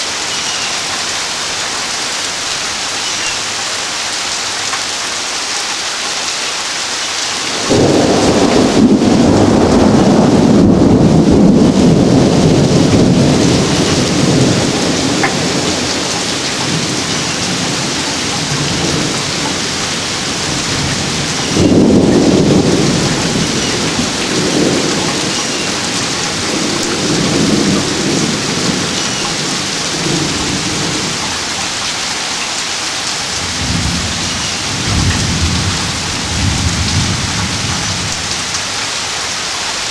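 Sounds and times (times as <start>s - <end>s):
steady rain: 0.0s - 39.9s
thunder rolling: 7.5s - 31.2s, 33.4s - 38.2s.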